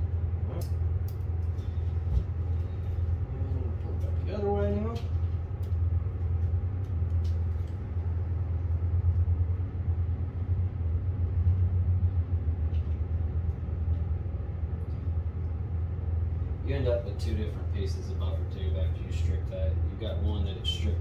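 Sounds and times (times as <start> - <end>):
low machinery rumble: 0.0 - 21.0.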